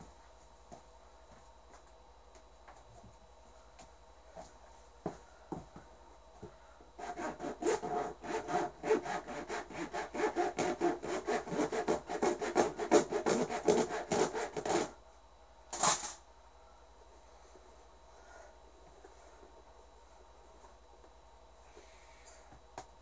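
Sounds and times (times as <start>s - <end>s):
handsaw cutting: 7.0s - 14.9s.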